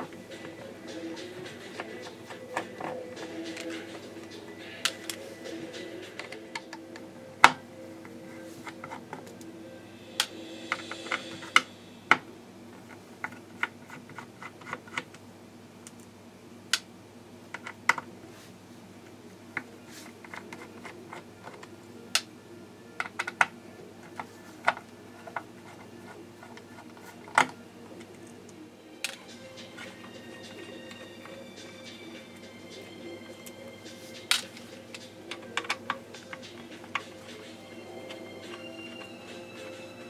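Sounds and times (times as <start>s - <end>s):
screwdriver clicking and tapping: 23.0s - 23.5s.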